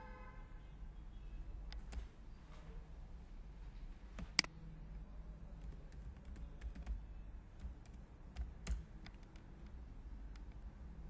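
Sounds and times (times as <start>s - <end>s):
computer keyboard typing: 1.7s - 2.2s, 5.5s - 10.7s.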